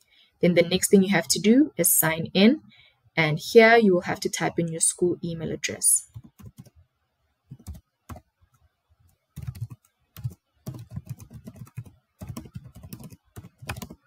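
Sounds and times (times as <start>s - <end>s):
computer keyboard typing: 6.1s - 6.8s, 7.5s - 8.3s, 9.3s - 14.0s.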